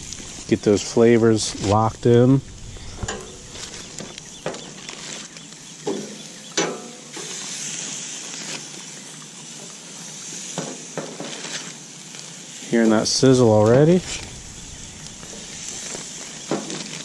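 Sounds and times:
chicken wings sizzling on grill: 0.0s - 17.0s
metal tongs clinking on grate: 3.0s - 3.4s.

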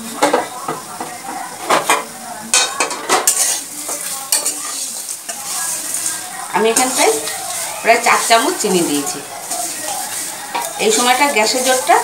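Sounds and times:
frying sizzle: 0.0s - 12.0s
metal spatula scraping pan: 2.6s - 12.0s.

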